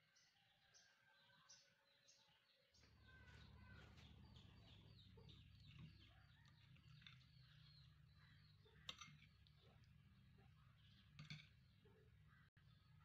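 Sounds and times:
faint bird calls: 2.8 - 11.1.

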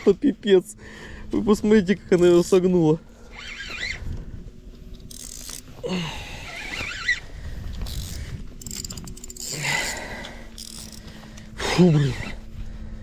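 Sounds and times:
fishing reel drag clicking: 3.2 - 4.2, 5.0 - 5.7, 6.5 - 12.3
wavering high squeal: 3.3 - 4.1, 6.5 - 7.2.

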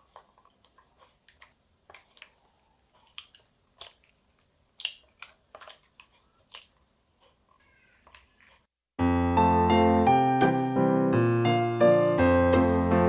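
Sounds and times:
eggshells cracking: 0.0 - 8.7.

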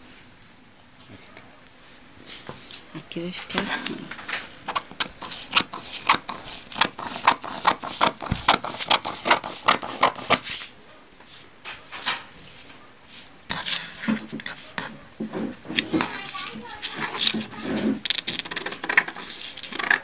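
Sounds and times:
paper rustling: 1.9 - 20.0
scissors snipping paper: 3.4 - 10.7, 13.5 - 15.0, 15.7 - 20.0.

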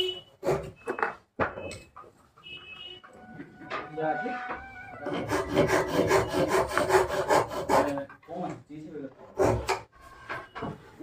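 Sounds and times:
hand scraping wooden frame: 3.4 - 8.4.

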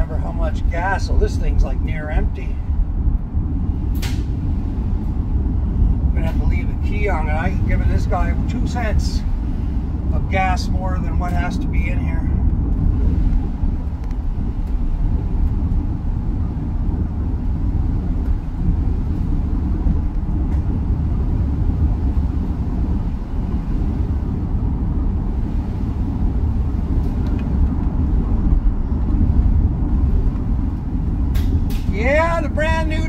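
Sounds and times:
van engine and road rumble: 0.0 - 33.0.

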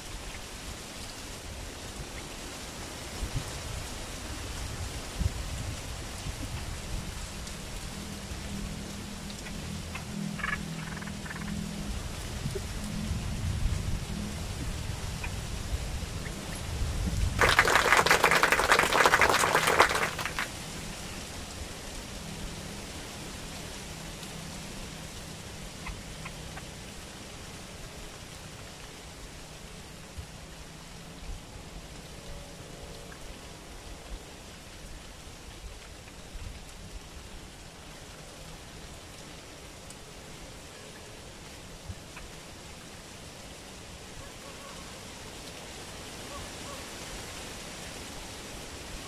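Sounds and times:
wind rumble on microphone: 0.0 - 18.7
outdoor hiss: 0.0 - 49.0
birds fluttering wings in cage: 17.4 - 20.5.

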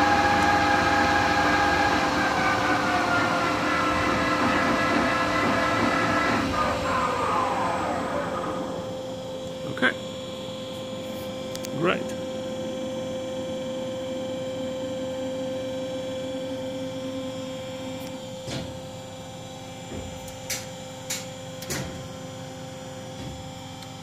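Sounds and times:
lathe machine hum: 0.0 - 11.5
rising machine whine: 0.0 - 21.6.

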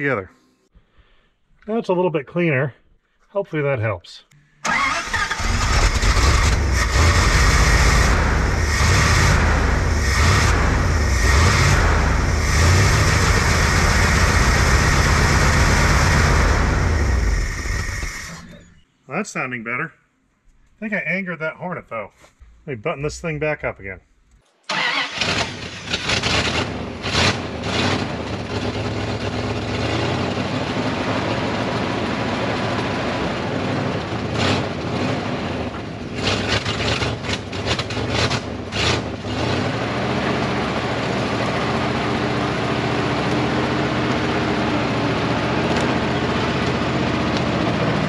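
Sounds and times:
dump truck engine running: 39.7 - 48.0.

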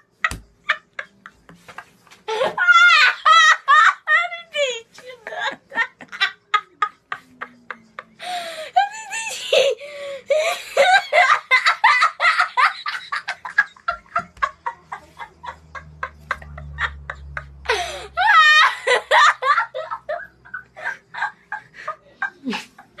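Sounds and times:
boy laughing: 10.4 - 23.0.

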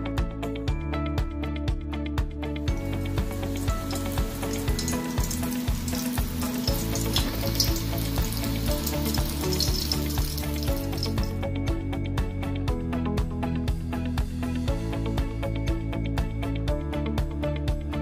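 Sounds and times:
background music: 0.0 - 18.0
dumplings sizzling in hot oil: 2.7 - 11.4.

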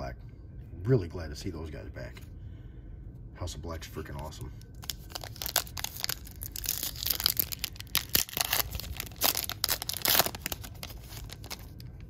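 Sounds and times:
foil wrapper tearing and crinkling: 4.7 - 11.9.

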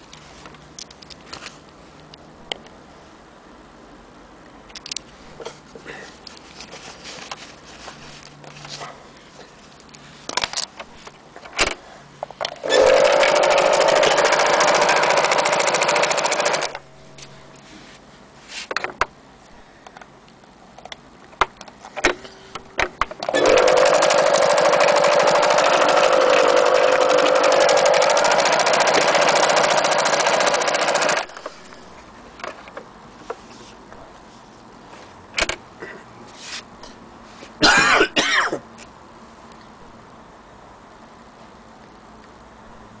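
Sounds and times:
sewing machine stitching: 12.6 - 16.8, 23.2 - 31.7.

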